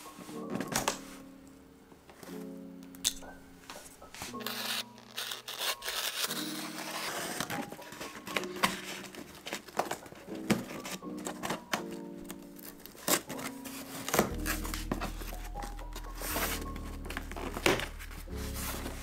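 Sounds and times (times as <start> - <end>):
soft background music: 0.0 - 19.0
packing tape tearing: 4.2 - 19.0
blade scraping cardboard: 4.3 - 11.0.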